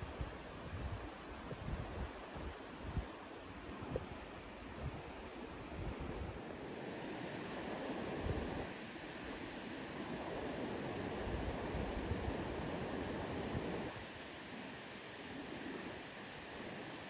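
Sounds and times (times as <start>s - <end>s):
wind rushing through trees: 0.0s - 17.0s.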